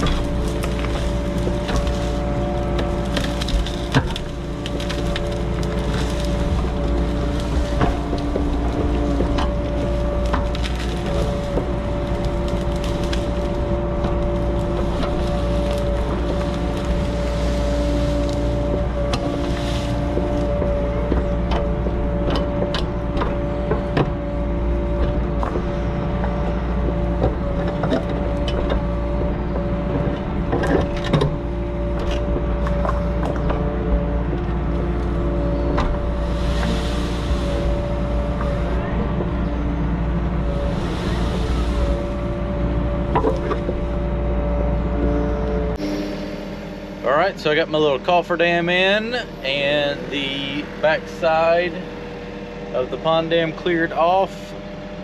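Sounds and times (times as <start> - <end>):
digging cracks and snaps: 0.0 - 39.2
excavator diesel engine running: 0.0 - 55.0.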